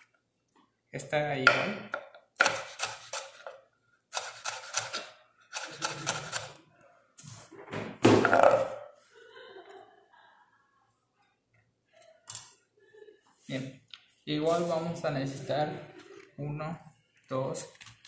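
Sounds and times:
knife chopping on cutting board: 1.5 - 3.5
knife scraping cutting board: 2.4 - 6.6.

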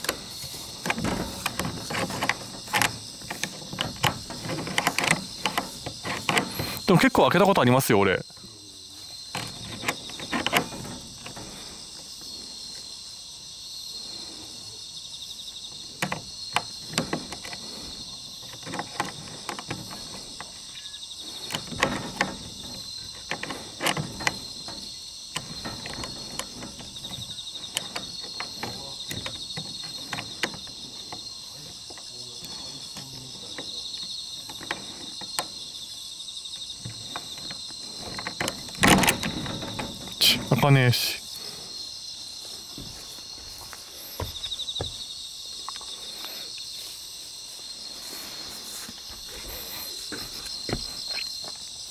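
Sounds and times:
insects chorus: 0.0 - 51.9
combination dial clicks and knocks: 0.8 - 7.1.

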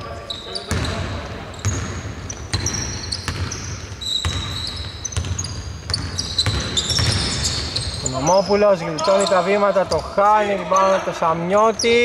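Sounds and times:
sneakers squeaking: 0.0 - 12.0
basketball bouncing on wood: 5.2 - 7.2.

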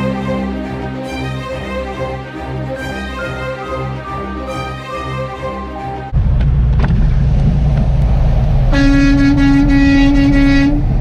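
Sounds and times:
truck engine rumble: 0.0 - 11.0
road noise inside cab: 6.1 - 11.0
air horn blast: 8.7 - 11.0.

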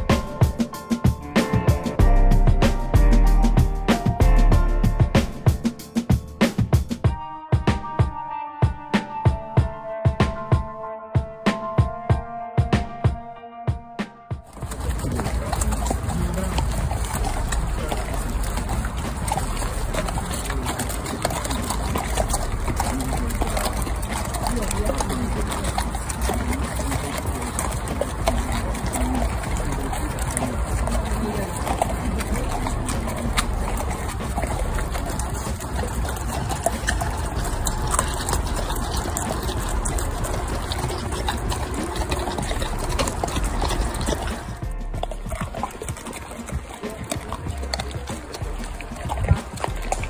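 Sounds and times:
hooves stepping in mud and leaves: 0.0 - 5.6, 14.5 - 50.0
low rumble on microphone: 14.6 - 46.8.

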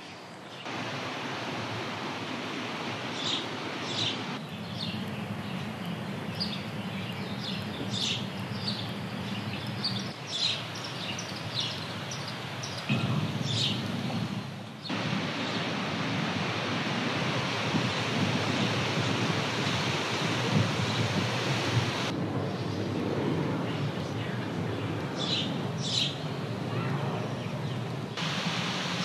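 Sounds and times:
ocean surf breaking: 0.6 - 4.4, 13.0 - 22.2, 28.2 - 29.0
small birds chirping: 3.1 - 14.2.

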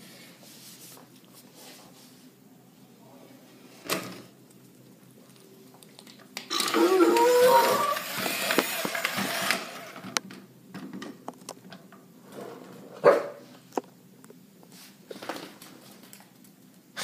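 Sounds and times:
toy robot rolling on tile: 6.5 - 10.2
small dog barking: 13.0 - 13.4.

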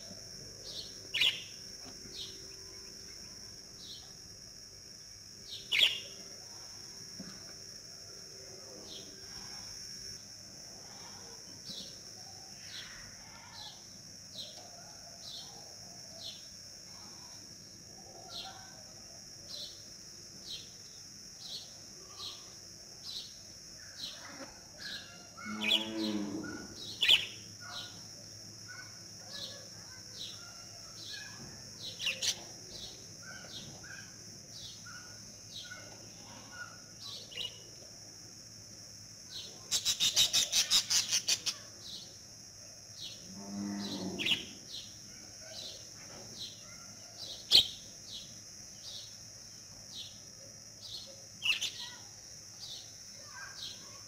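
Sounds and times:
birds chirping: 0.7 - 3.3
farm animal call: 24.1 - 27.2.

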